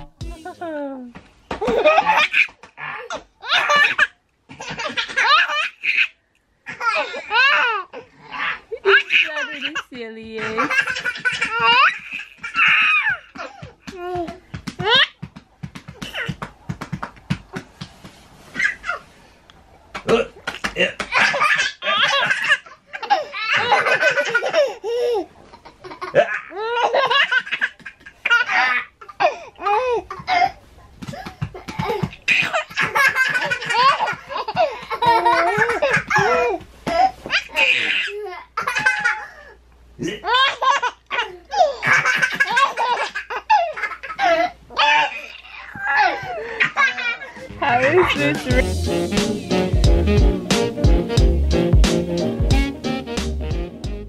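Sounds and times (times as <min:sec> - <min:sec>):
baby laughing: 0:01.6 - 0:09.8, 0:10.4 - 0:15.2, 0:18.6 - 0:19.0, 0:20.0 - 0:48.6.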